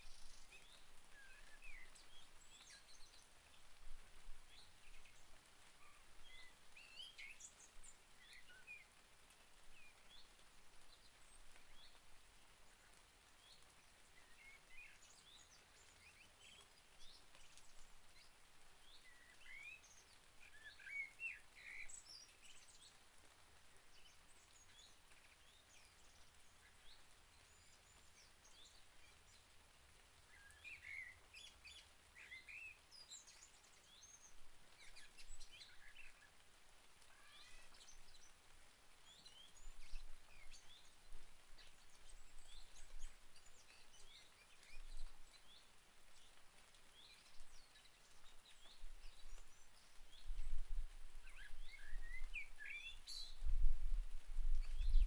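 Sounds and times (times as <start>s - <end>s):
light rain hiss: 0.0s - 55.0s.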